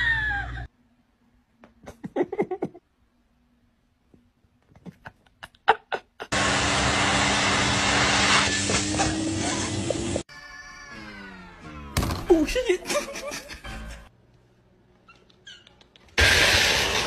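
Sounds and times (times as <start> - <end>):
vacuum cleaner running: 6.3 - 10.2.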